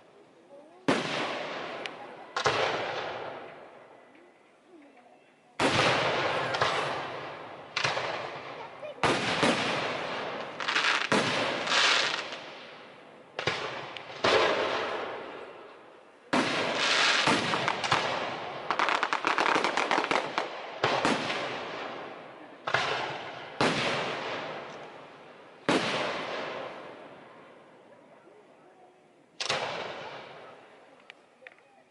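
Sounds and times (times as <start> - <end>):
rapid firework crackling: 5.6 - 12.8, 16.3 - 22.0.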